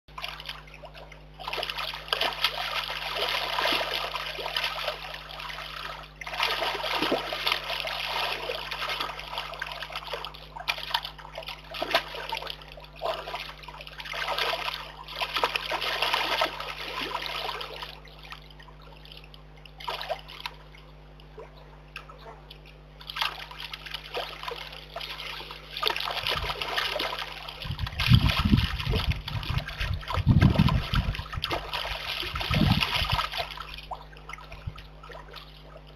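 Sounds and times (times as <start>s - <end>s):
animal splashing in water: 0.1s - 18.4s, 23.0s - 35.9s.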